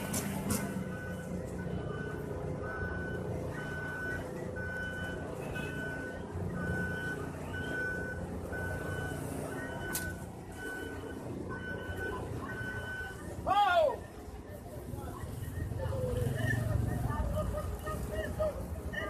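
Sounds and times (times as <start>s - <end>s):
reversing alarm beeping: 0.5s - 13.5s.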